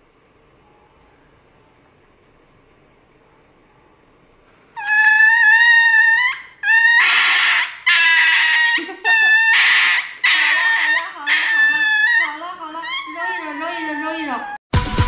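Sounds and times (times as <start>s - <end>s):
small dog screaming: 4.8s - 14.6s.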